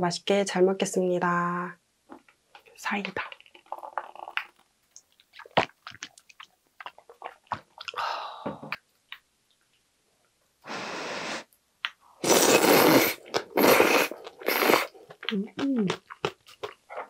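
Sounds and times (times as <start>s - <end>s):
loud slurping of noodles: 12.2s - 15.0s.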